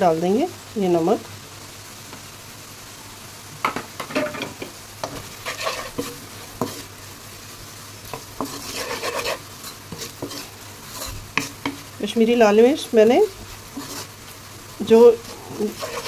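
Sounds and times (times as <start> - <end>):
oil sizzling: 0.0 - 16.0
spatula scraping a pan: 4.0 - 7.0, 8.0 - 11.9, 13.4 - 16.0.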